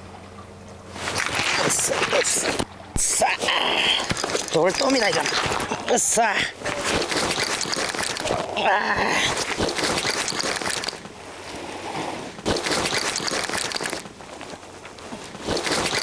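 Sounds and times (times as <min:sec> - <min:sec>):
fishing reel being cranked: 0:04.0 - 0:05.7, 0:07.0 - 0:08.4, 0:09.4 - 0:11.0, 0:12.5 - 0:14.1, 0:15.5 - 0:16.0.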